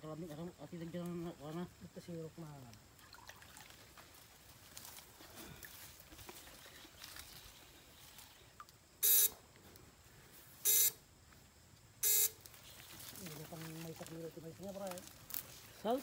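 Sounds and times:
electrofishing unit buzzing: 9.0s - 9.4s.

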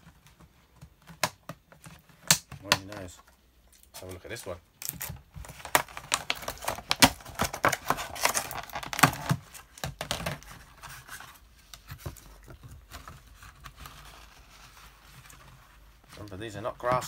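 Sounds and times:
plastic tub crackling and clicking: 4.8s - 10.5s.

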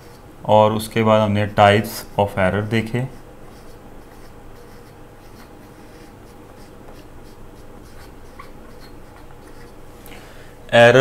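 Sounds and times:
marker scratching on whiteboard: 2.9s - 9.8s.

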